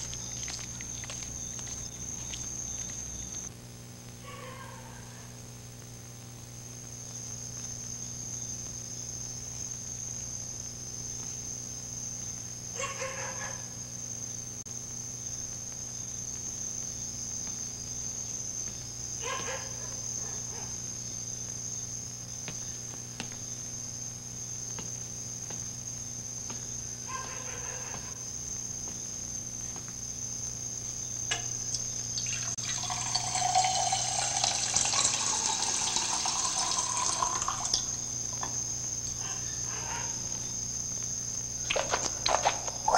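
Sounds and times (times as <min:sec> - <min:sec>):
cricket trill: 0:00.0 - 0:03.6, 0:04.2 - 0:42.9
low electrical hum: 0:00.0 - 0:42.9
tap water running into sink: 0:32.2 - 0:37.9.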